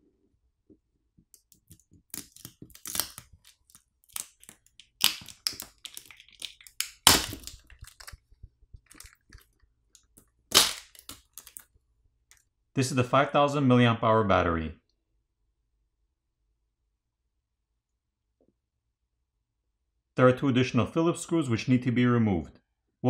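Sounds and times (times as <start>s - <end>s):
plastic crackling and snapping: 1.3s - 11.7s.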